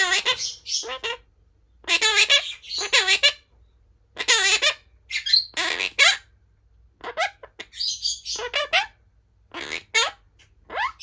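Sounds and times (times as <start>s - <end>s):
parakeet talking and squawking: 0.0s - 11.0s.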